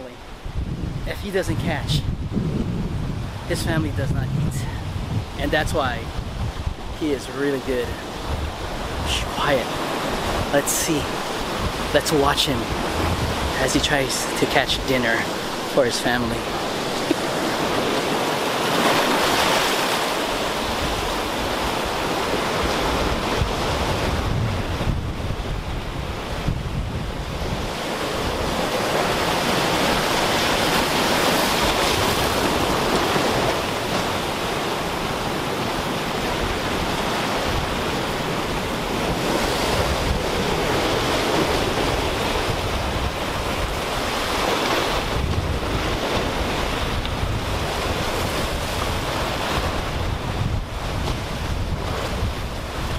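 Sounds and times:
wind buffeting microphone: 0.3s - 7.1s, 7.8s - 52.9s
surf breaking over rocks: 5.5s - 26.6s.

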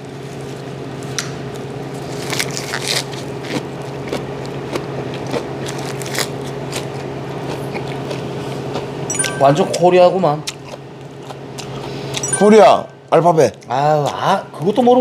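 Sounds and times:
man crunching and chewing: 2.1s - 9.0s
steady hum: 8.8s - 13.4s.

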